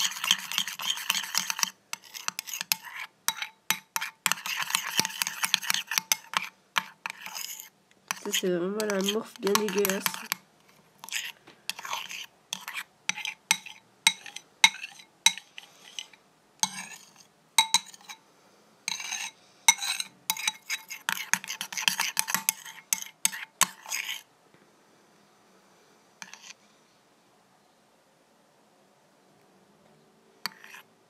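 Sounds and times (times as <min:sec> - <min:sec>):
utensil scraping a bowl: 0:00.0 - 0:18.2, 0:18.9 - 0:24.3, 0:26.2 - 0:26.6, 0:30.4 - 0:30.9.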